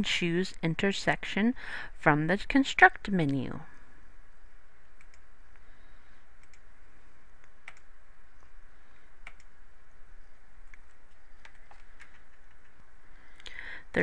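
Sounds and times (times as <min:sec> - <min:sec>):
low hum and hiss: 0:00.0 - 0:14.0.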